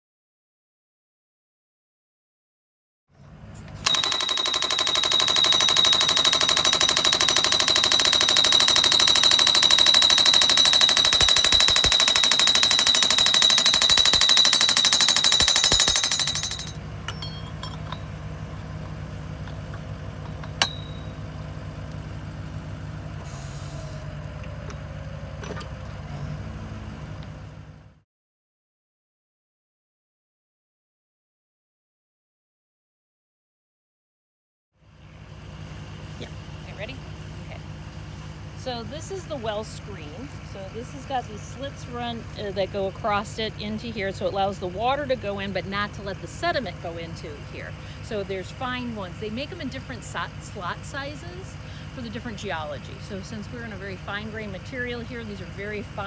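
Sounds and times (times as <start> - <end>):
percussion hammer driving rods: 3.6 - 18.2, 19.4 - 21.2
machinery humming: 34.9 - 56.0.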